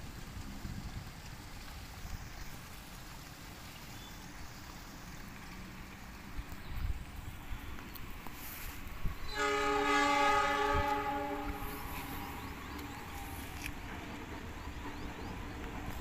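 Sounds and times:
train horn blast: 9.2 - 12.4.

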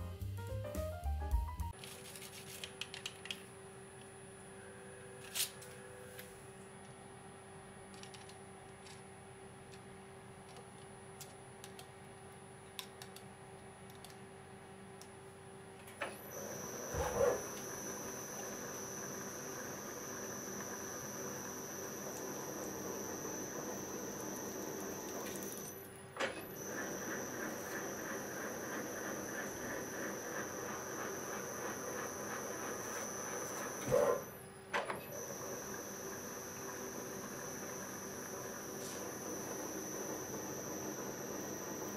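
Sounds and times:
mill spindle running with whine: 13.4 - 41.9.

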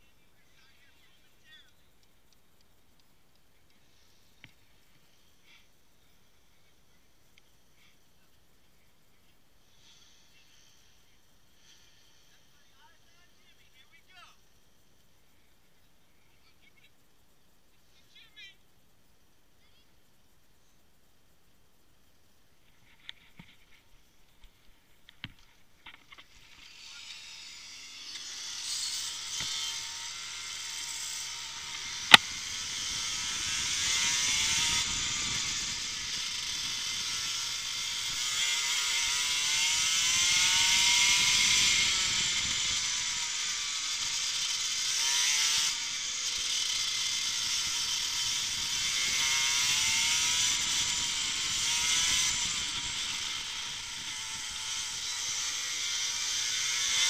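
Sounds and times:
kart engine accelerating: 26.2 - 57.0.

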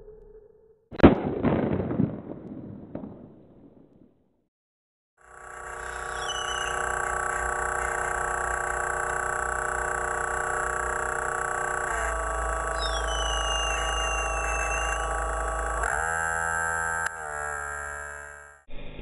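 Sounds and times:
sweeping whistle-like tone: 5.8 - 7.0, 12.8 - 15.2.

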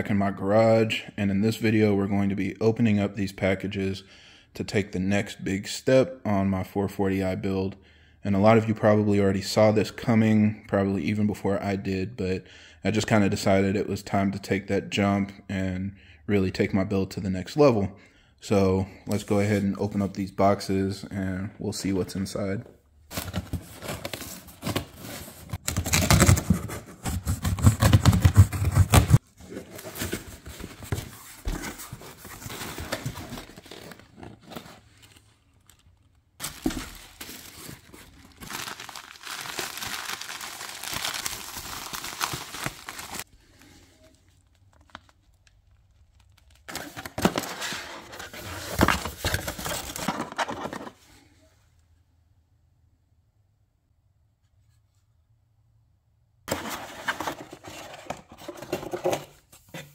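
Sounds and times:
plastic packing crinkling: 31.8 - 47.5.

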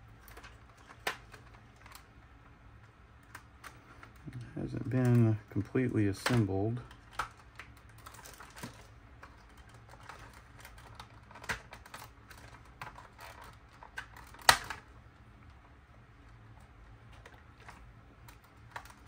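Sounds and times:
plastic toy parts clicking: 4.9 - 14.9, 17.2 - 19.0.

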